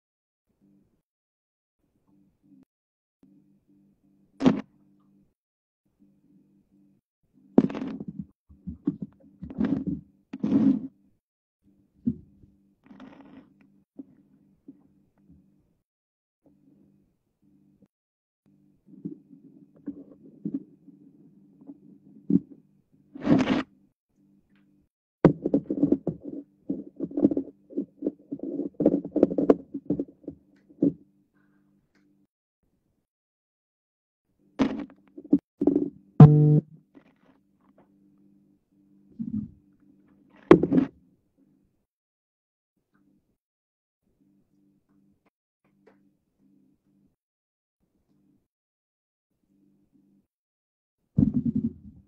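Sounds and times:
rapid knocks and thumps: 51.2 - 52.0.

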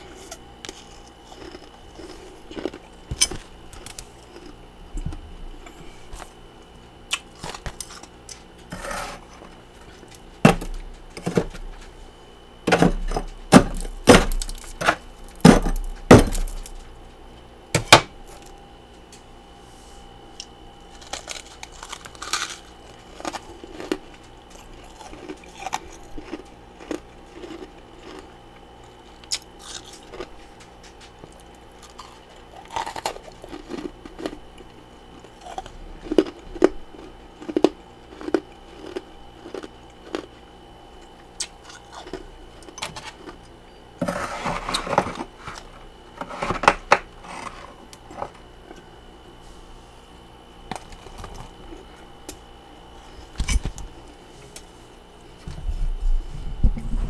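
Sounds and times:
chewing frost crunching: 0.0 - 11.9, 20.4 - 48.4
metal spoon scraping plastic bowl: 44.0 - 48.4.

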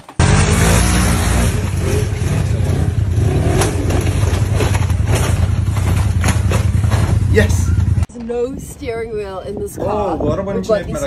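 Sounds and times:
utv engine revving under load: 0.2 - 8.1.

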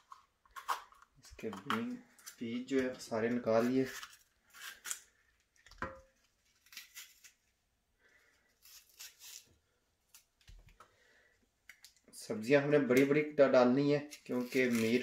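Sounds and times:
knife cutting pepper: 14.1 - 15.0.

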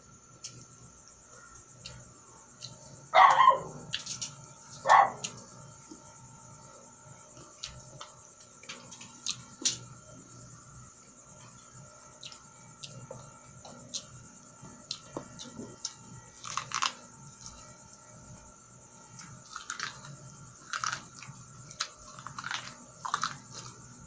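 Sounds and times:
biting corn kernels: 1.4 - 5.6, 7.3 - 9.9, 14.8 - 18.1, 19.0 - 24.0
chewing crunches: 7.3 - 10.0, 11.4 - 24.0.

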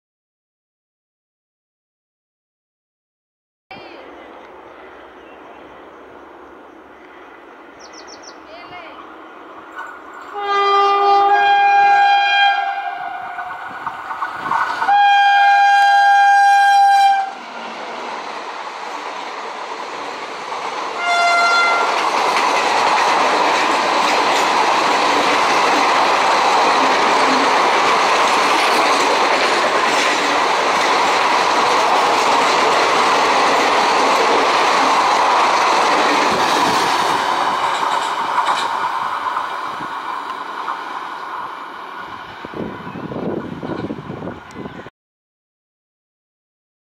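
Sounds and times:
locomotive air horn: 10.3 - 13.5, 14.9 - 17.4, 21.0 - 22.0
train wheels clattering on rail: 18.9 - 41.0.

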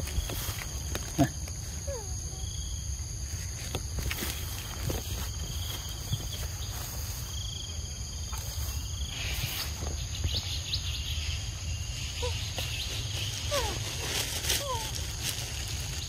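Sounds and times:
cricket-like trill: 0.0 - 16.0.

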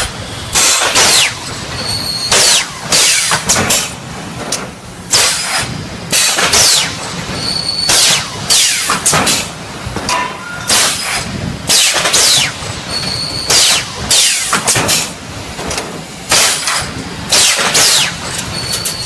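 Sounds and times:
welding machine hissing bursts: 5.1 - 9.5, 10.7 - 15.2, 16.2 - 18.5.

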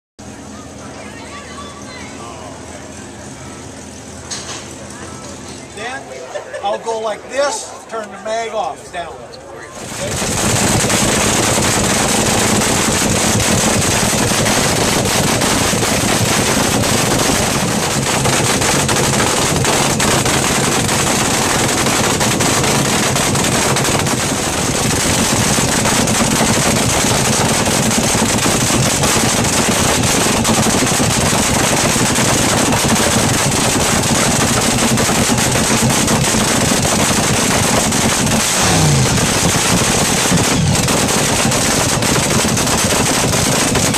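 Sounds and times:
dragster engine idling: 9.7 - 43.9.

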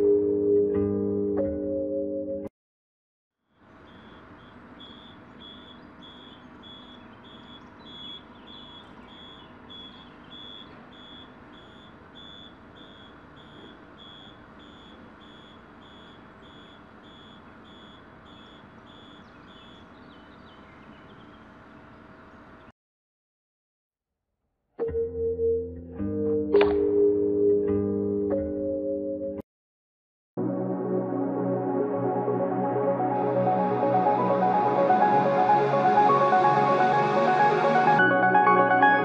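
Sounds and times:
warning buzzer beeping: 3.9 - 19.2.

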